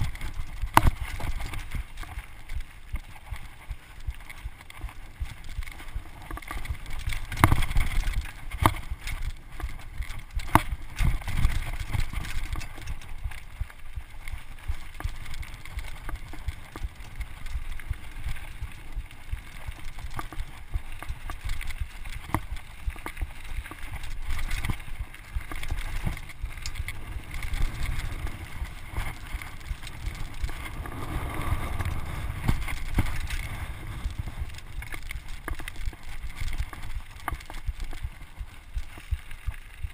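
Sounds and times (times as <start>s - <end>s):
bike rattling and knocking: 0.0s - 39.9s
bike tyres crunching on gravel: 0.0s - 39.9s
wind buffeting microphone: 24.2s - 37.0s.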